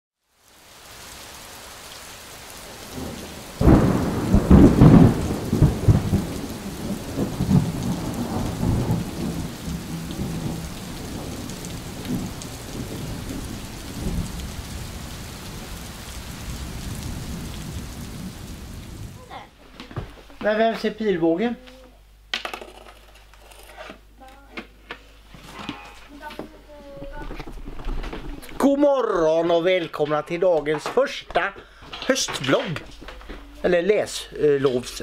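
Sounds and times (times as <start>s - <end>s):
steady rain: 0.2s - 22.7s, 25.2s - 35.0s
thunder rumbling: 2.6s - 19.4s.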